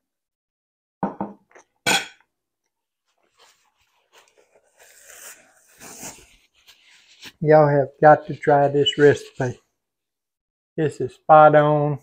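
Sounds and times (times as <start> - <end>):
paper napkin crinkling: 3.0 - 7.4.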